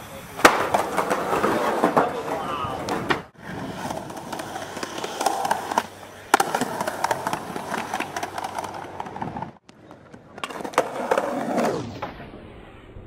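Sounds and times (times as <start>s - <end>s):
skateboard wheels rolling on concrete: 0.0s - 13.0s
skateboard clacks: 0.3s - 11.8s
sharp crack: 0.4s - 1.1s.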